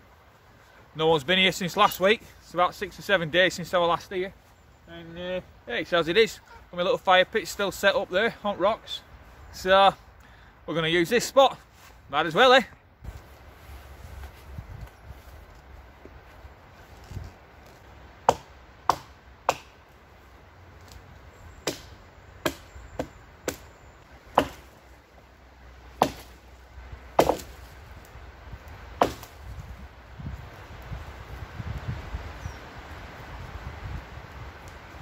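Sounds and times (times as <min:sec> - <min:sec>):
axe chopping wood: 0:18.2 - 0:19.8, 0:21.6 - 0:23.7, 0:24.3 - 0:24.7, 0:26.0 - 0:26.4, 0:27.2 - 0:27.6, 0:29.0 - 0:29.4.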